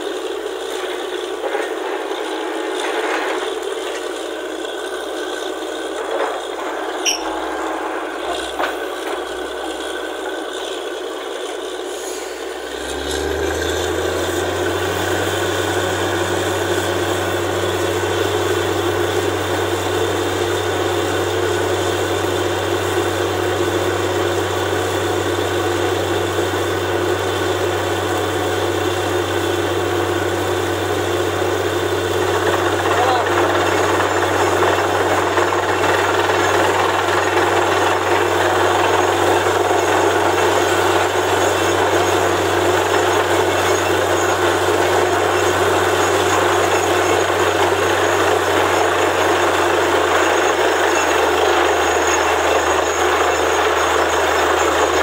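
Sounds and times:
drilling rig rattling and scraping: 0.0 - 12.7, 31.0 - 55.0
deep engine hum: 0.0 - 55.0.

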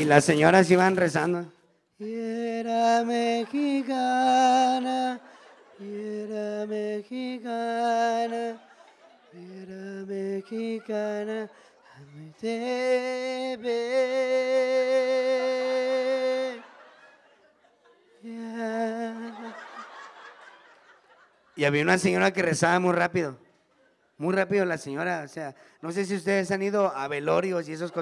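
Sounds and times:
man singing a slow chant: 2.0 - 8.7, 9.3 - 16.7, 18.2 - 19.6.

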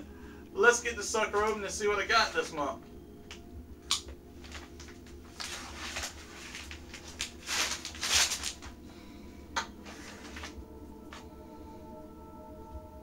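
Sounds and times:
plastic rustling and tearing: 4.4 - 8.8
knife slitting plastic bag: 5.3 - 8.7.

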